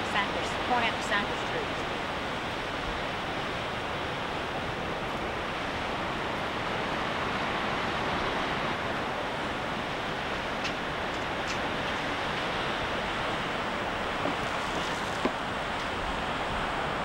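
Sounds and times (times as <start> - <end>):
waves breaking: 0.0 - 17.0.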